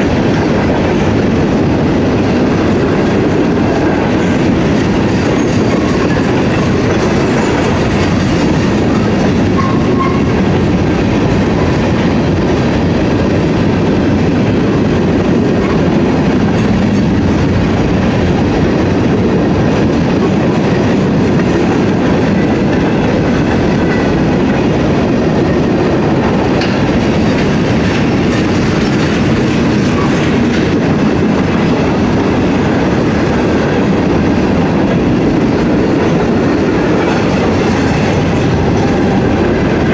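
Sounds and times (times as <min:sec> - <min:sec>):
freight train wheels on rails: 0:00.0 - 0:39.9
train cars rattling: 0:00.0 - 0:39.9.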